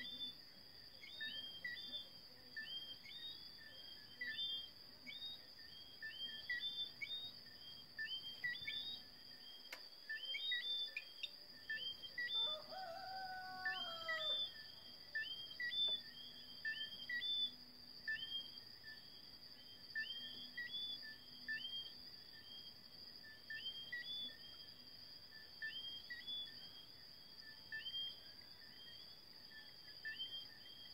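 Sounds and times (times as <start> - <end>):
high-pitched insect trill: 0.0 - 30.9
rooster crowing: 12.3 - 14.6.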